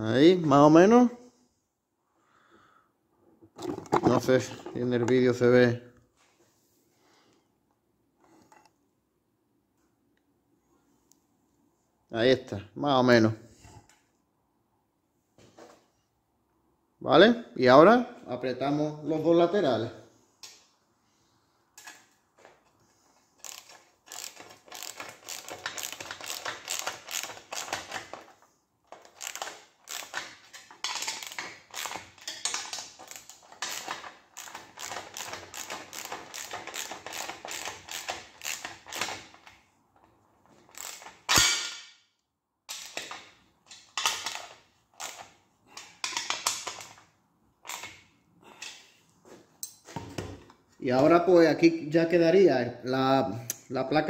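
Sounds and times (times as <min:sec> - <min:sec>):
hand ratchet clicking: 0:23.4 - 0:28.3, 0:28.9 - 0:39.5, 0:40.6 - 0:41.5, 0:42.7 - 0:47.0, 0:47.6 - 0:48.0.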